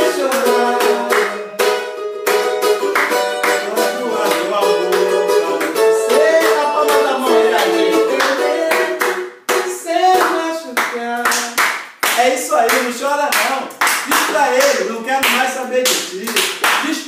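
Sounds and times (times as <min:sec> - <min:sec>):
man singing: 0:00.0 - 0:01.7, 0:03.4 - 0:17.0
small guitar strummed: 0:00.0 - 0:09.8
hands clapping to the beat: 0:00.0 - 0:17.0.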